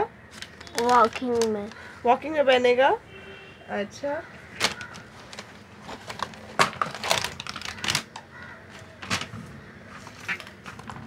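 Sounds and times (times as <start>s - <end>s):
handling clicks and rustles: 4.6s - 11.0s.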